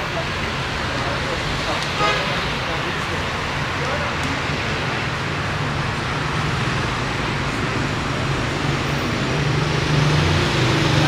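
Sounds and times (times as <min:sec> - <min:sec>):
cars passing: 0:00.0 - 0:11.0.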